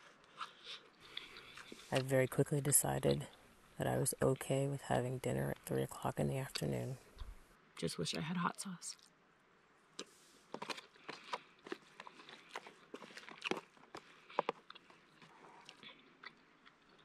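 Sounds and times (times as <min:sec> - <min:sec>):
person chewing food: 0:00.2 - 0:02.1, 0:10.0 - 0:17.0.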